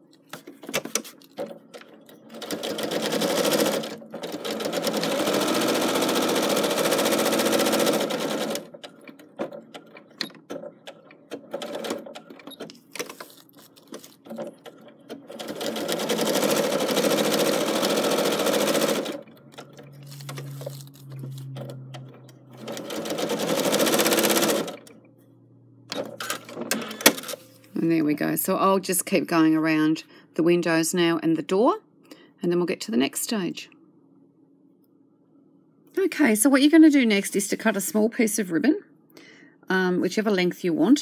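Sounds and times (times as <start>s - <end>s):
sewing machine stitching: 1.8s - 13.3s, 13.9s - 24.9s.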